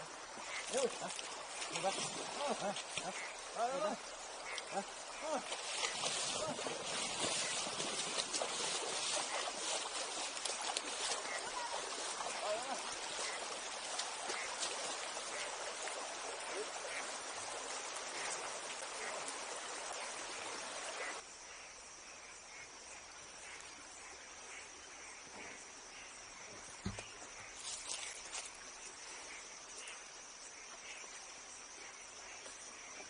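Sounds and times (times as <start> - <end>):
stream rushing over weir: 0.0 - 21.2
insects droning: 0.0 - 33.0.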